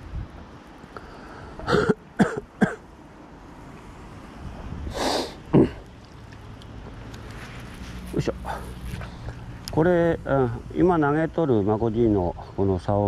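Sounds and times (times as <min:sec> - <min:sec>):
man clearing his throat: 0:01.6 - 0:02.8, 0:05.5 - 0:05.8
man coughing: 0:01.6 - 0:02.8, 0:05.5 - 0:05.8.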